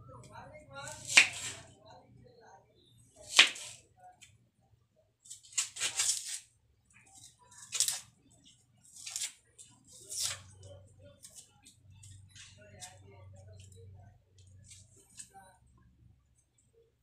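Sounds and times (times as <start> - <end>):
knife slicing a tomato: 0.9 - 1.7, 3.2 - 3.8, 5.3 - 6.5, 7.2 - 8.1, 8.9 - 10.6.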